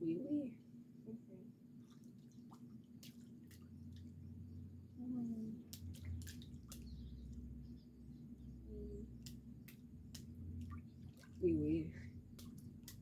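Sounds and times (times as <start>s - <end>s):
steady low hum: 0.0s - 13.0s
water drips and small splashes: 1.7s - 13.0s.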